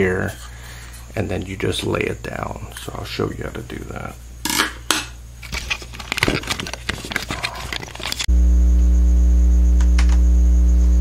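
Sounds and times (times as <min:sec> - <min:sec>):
electrical mains hum: 0:00.0 - 0:11.0
hands handling computer parts: 0:05.4 - 0:08.3.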